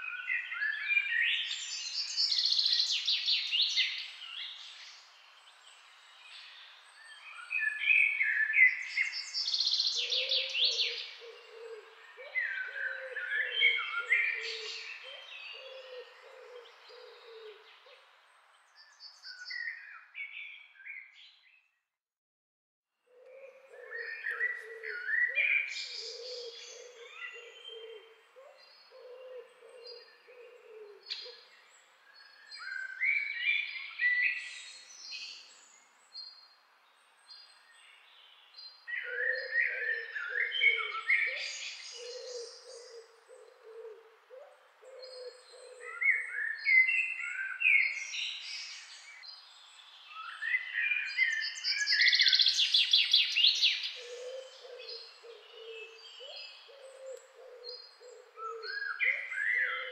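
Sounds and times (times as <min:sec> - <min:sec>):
birds warbling song: 0:00.0 - 0:21.8, 0:23.1 - 0:59.9
bird low calls: 0:07.4 - 0:18.0, 0:23.1 - 0:34.8, 0:38.8 - 0:49.2, 0:50.1 - 0:59.9.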